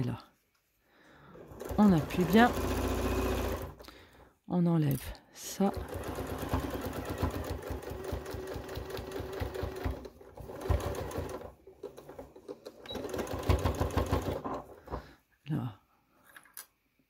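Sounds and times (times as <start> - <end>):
sewing machine stitching: 1.3 - 3.8, 5.6 - 15.0.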